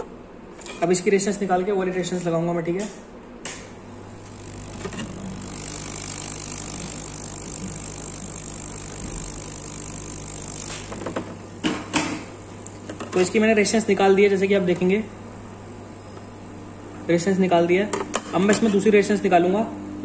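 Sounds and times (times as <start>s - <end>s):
hot air gun hissing: 3.9s - 12.2s.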